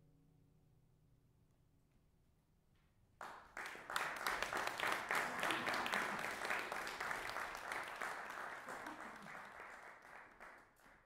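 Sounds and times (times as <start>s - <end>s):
audience applause: 3.2s - 11.0s.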